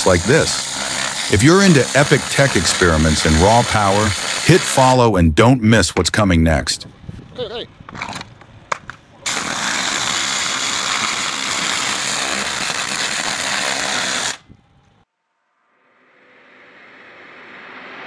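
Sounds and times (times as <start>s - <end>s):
pressure washer spray hissing: 0.0s - 5.0s, 9.3s - 14.4s
faint rising sound: 14.5s - 18.0s.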